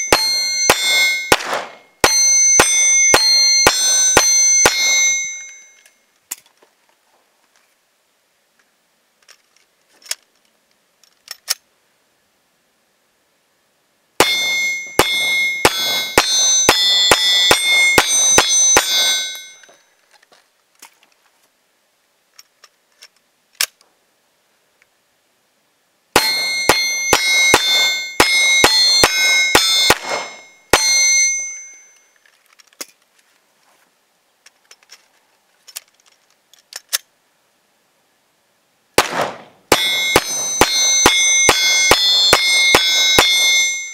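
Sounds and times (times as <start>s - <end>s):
steel targets ringing: 0.0s - 5.9s, 14.2s - 19.9s, 26.2s - 32.1s, 39.0s - 43.9s
pistol shots: 0.1s - 2.2s, 14.2s - 19.1s, 26.2s - 30.9s, 39.0s - 43.4s
gun handling clicks: 5.8s - 6.7s, 9.2s - 11.7s, 22.3s - 23.9s, 32.2s - 33.4s, 34.4s - 37.1s.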